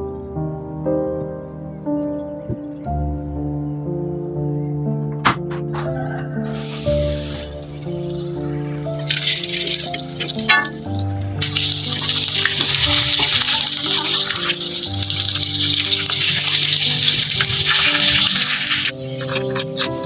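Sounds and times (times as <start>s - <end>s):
background music: 0.0s - 20.0s
chicken deep-frying in oil: 6.6s - 19.2s.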